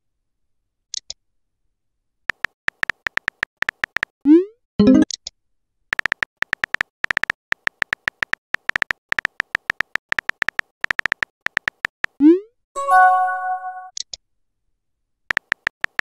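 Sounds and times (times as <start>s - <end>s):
phone keyboard typing clicks: 2.3s - 4.1s, 5.9s - 12.2s, 15.3s - 16.0s.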